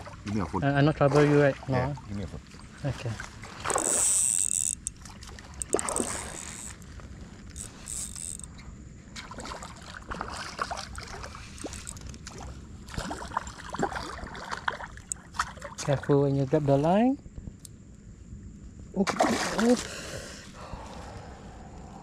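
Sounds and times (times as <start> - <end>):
water sloshing and splashing: 0.0 - 8.5, 9.1 - 17.0, 19.0 - 20.0.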